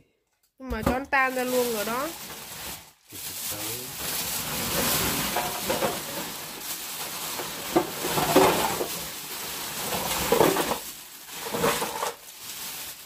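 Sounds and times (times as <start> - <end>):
ice and water splashing out: 3.6 - 13.0
ice clattering: 3.6 - 13.0.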